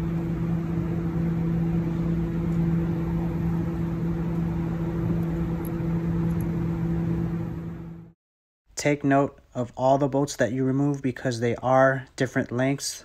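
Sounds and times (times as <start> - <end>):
machine hum: 0.0 - 8.2.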